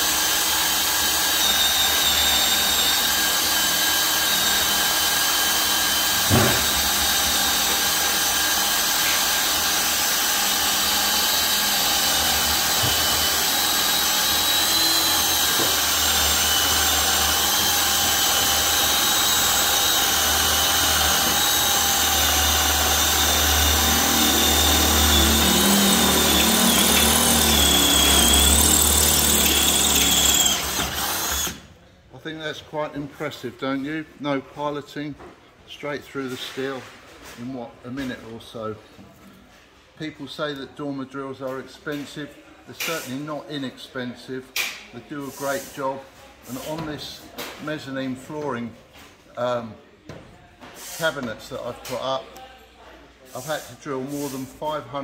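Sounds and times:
cordless drill boring into steel: 0.0 - 31.6.

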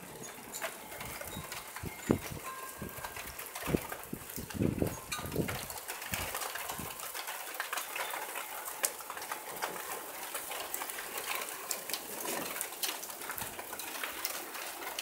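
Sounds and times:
heavy rain falling: 0.0 - 15.0
wind buffeting microphone: 0.9 - 7.0.

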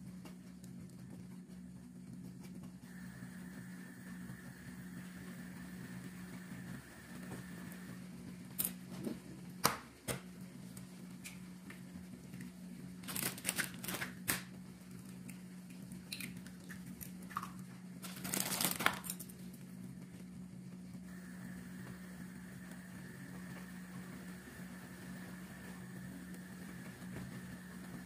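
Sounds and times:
steady low hum: 0.0 - 28.0
eggshells cracking: 16.1 - 19.3.

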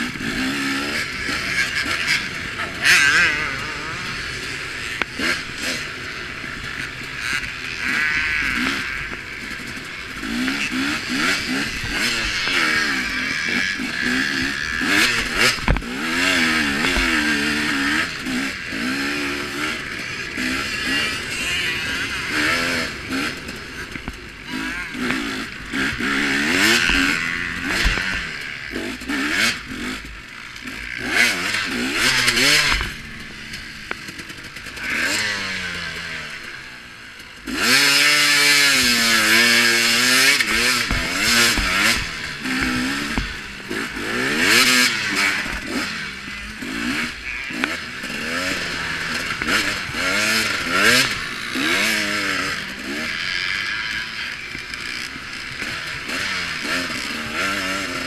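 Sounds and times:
dirt bike engine revving: 0.0 - 58.0
bike knocks and rattles: 39.9 - 43.4.

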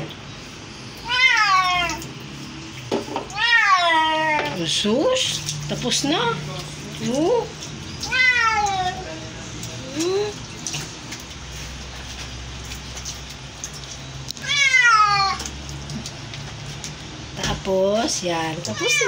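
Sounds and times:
cat meowing: 1.0 - 2.0, 3.3 - 4.5, 8.0 - 9.2, 14.4 - 15.5, 18.7 - 19.0.

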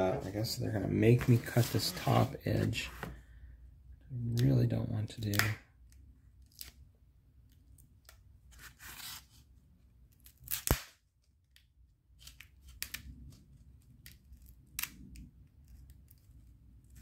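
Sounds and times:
sharp snap: 5.3 - 5.6, 10.5 - 11.0
blade slicing tape and cardboard: 10.2 - 11.0.

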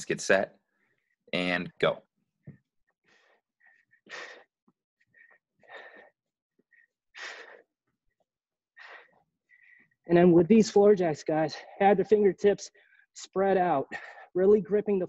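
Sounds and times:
man breathing hard: 3.1 - 7.8.

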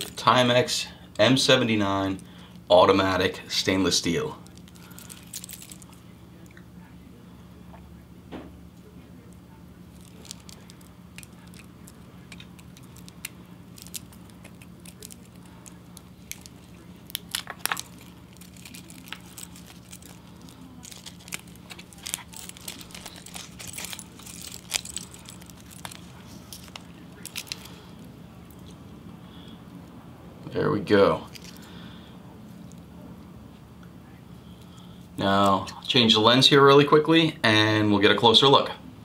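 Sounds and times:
low steady hum: 0.0 - 39.0
plastic crinkling and clicks: 10.0 - 27.8.

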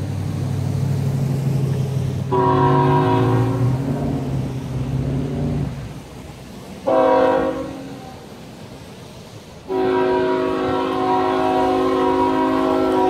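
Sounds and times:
locomotive air horn blasts: 2.2 - 4.4, 6.8 - 8.3, 9.6 - 13.0.

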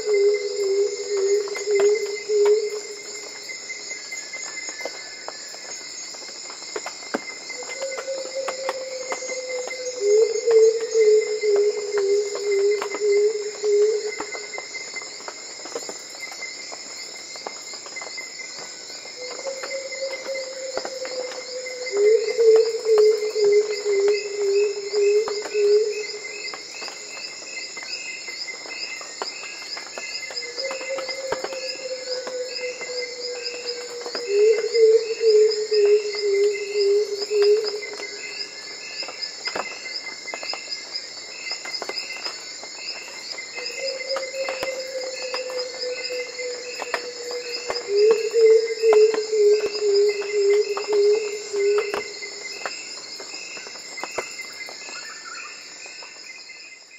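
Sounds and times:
insect chorus trilling: 0.0 - 56.9.

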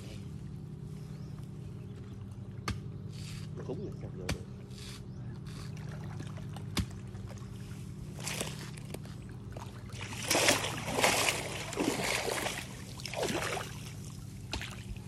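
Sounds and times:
person wading through water: 5.7 - 15.0.

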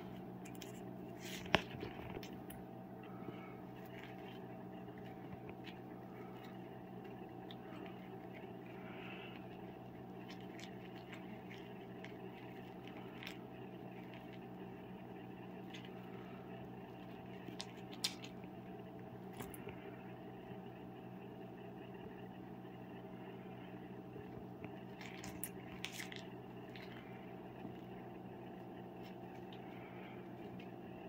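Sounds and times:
low household hum: 0.0 - 31.0
claws and teeth on fabric toy: 24.7 - 31.0.

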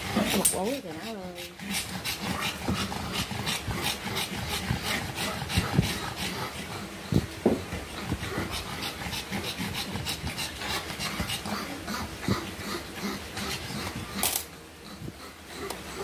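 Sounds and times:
dog panting rapidly: 0.0 - 14.2.

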